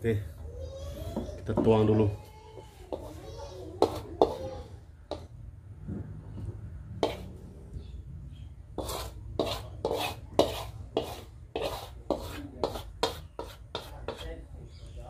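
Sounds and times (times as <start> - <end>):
wooden spatula scraping wok: 2.8 - 5.3, 7.0 - 7.4, 8.7 - 14.3.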